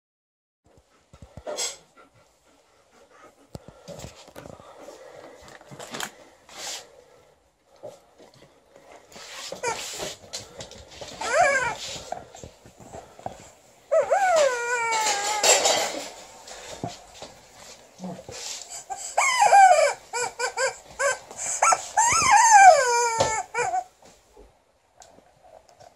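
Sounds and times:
dog whining and howling: 11.1 - 12.1, 13.9 - 16.1, 18.8 - 24.0.

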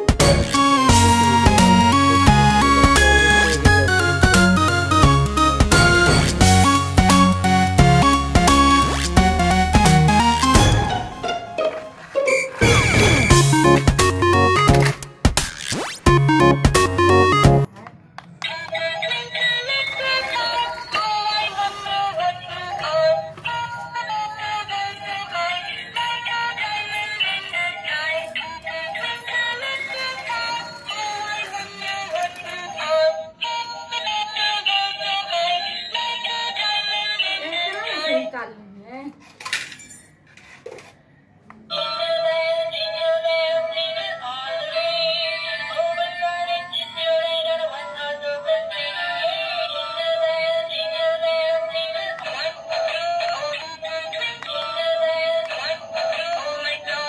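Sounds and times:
toy electronic melody: 0.0 - 15.0, 15.8 - 17.7, 18.6 - 38.3, 42.1 - 57.0
tinny synthesized tune: 0.0 - 17.7.

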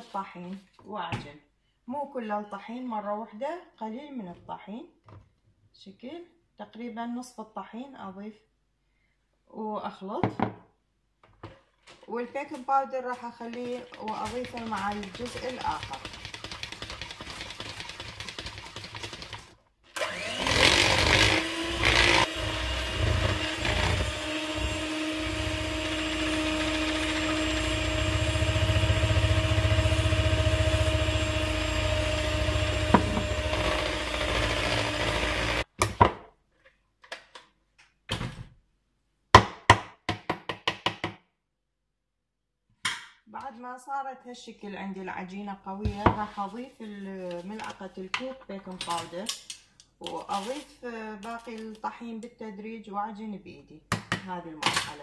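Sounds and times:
electric hand mixer running: 20.0 - 35.6.

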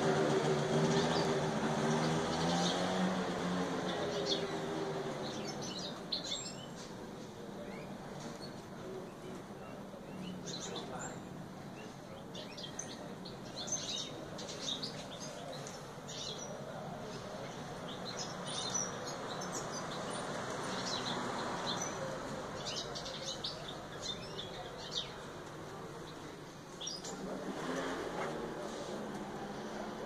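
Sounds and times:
canaries chirping: 0.0 - 27.3
steady background noise: 0.0 - 30.0.

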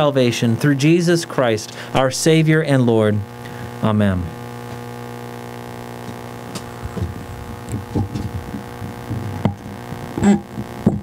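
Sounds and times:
electrical hum: 0.0 - 11.0
microphone handling thumps: 6.0 - 11.0.

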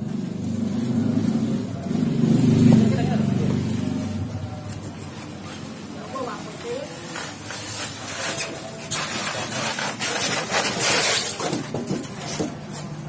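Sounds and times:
foam tray scraping cardboard box: 6.9 - 12.8.

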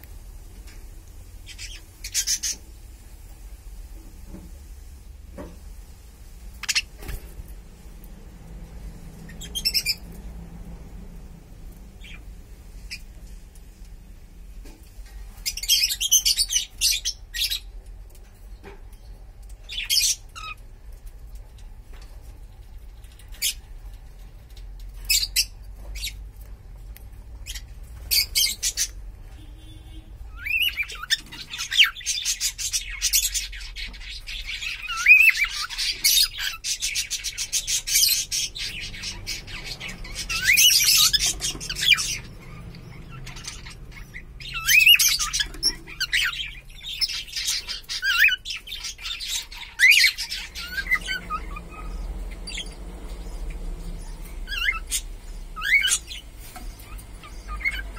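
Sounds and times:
cockatiels chirping and squawking: 1.5 - 2.7, 6.6 - 7.3, 9.2 - 10.3, 11.8 - 12.3, 15.0 - 17.8, 18.6 - 20.7, 21.4 - 26.5, 27.3 - 57.9.

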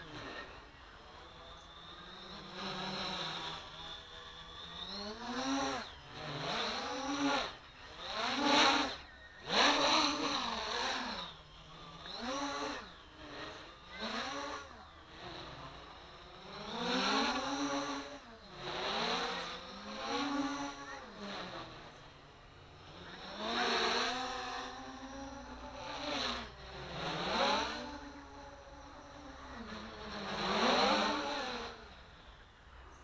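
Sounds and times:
quadcopter propellers buzzing: 0.0 - 33.0.

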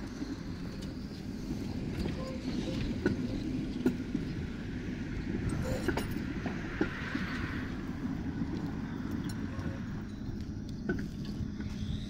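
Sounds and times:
tram wheels rumbling on rails: 0.0 - 12.0.

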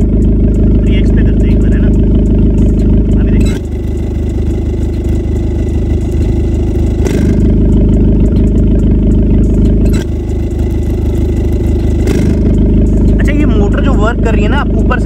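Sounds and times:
car engine idling: 0.0 - 15.0
exhaust flap click: 2.0 - 13.4.

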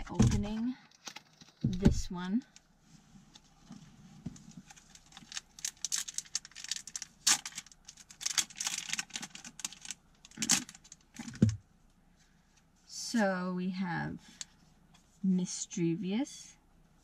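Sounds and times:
foil wrapper crinkling and tearing: 0.8 - 1.7, 4.5 - 11.5.

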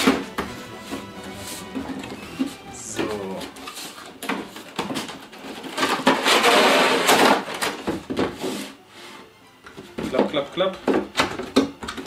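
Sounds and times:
clicks and scrapes: 3.4 - 7.8.

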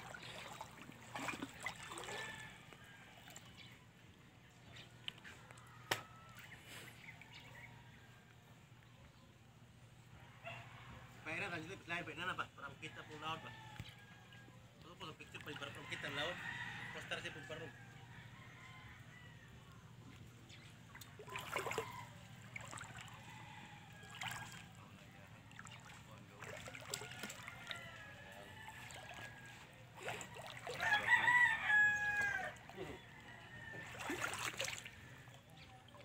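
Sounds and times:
rooster crowing: 27.0 - 35.0.

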